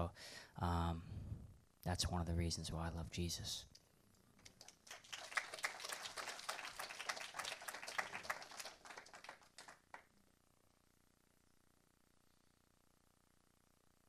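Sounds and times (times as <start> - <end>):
congregation applauding: 4.4 - 10.0.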